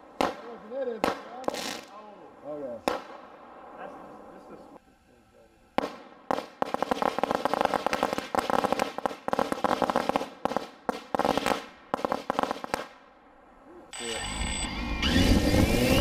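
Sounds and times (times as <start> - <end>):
firecrackers cracking: 0.0 - 2.1, 2.8 - 4.2, 5.8 - 13.0.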